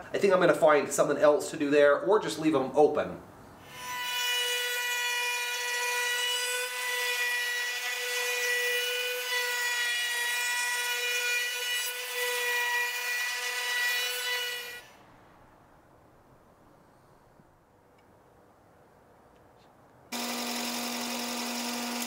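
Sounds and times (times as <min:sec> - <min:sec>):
wood router high-pitched whine: 0:20.2 - 0:22.0.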